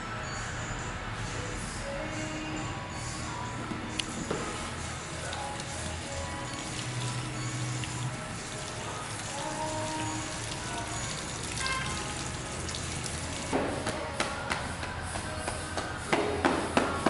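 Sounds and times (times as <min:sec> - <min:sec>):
shower head spraying water: 0:05.0 - 0:13.5.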